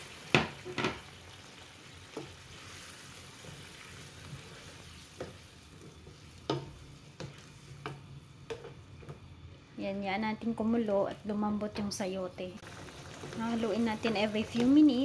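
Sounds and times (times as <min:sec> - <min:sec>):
spatula stirring food in a pan: 0:00.0 - 0:09.7
low sizzle: 0:00.0 - 0:15.0
spatula knocking against pan: 0:06.5 - 0:07.3.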